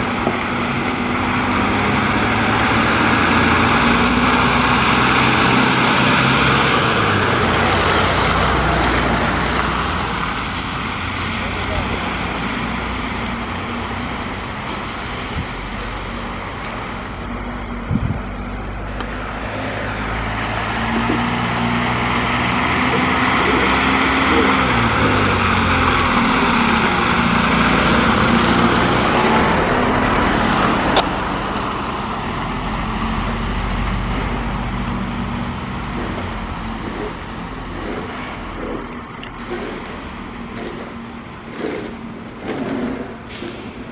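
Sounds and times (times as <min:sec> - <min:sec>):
diesel truck engine passing: 0:00.0 - 0:43.9
tyres hissing through slush: 0:01.6 - 0:17.4, 0:18.7 - 0:43.9.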